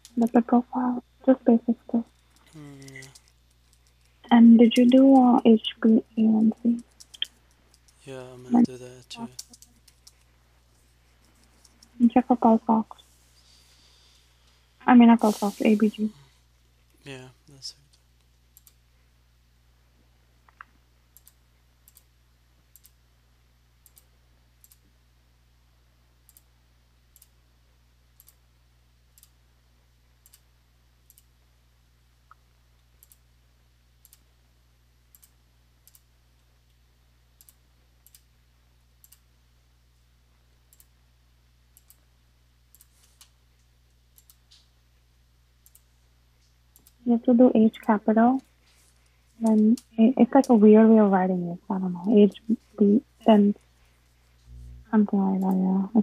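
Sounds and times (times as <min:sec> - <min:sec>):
faint low hum: 0:00.0 - 0:56.0
keyboard and mouse clicks: 0:02.1 - 0:05.3, 0:06.4 - 0:08.0, 0:09.2 - 0:10.3, 0:11.3 - 0:12.0, 0:20.5 - 0:22.1.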